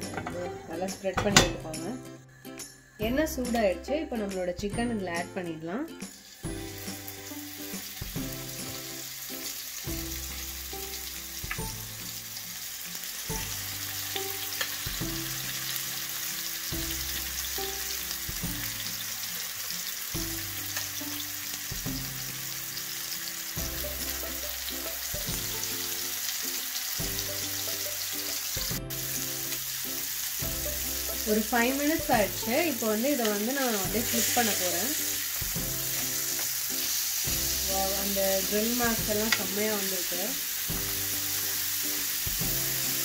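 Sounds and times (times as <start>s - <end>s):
chicken sizzling in hot oil: 6.0s - 43.0s
background music with low beat: 35.4s - 36.3s.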